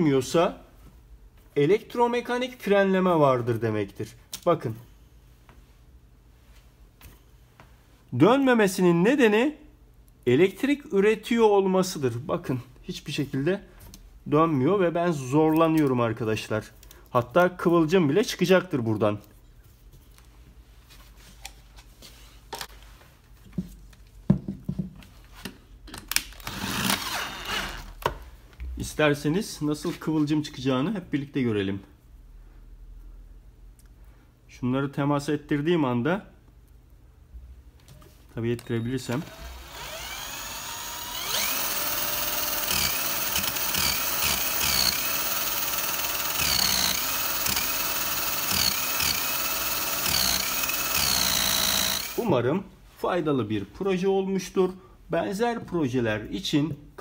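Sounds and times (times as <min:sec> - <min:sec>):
knocks and clunks on tabletop: 0:24.3 - 0:25.0
cordless drill whirring: 0:26.4 - 0:28.0, 0:39.2 - 0:52.2.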